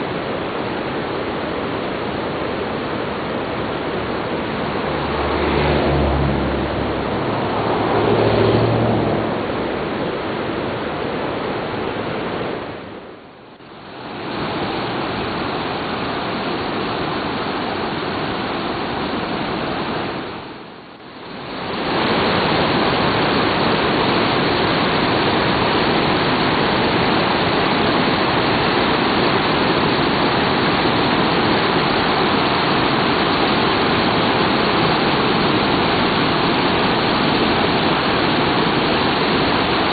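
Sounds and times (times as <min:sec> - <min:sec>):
river rapids rushing: 0:00.0 - 0:39.9.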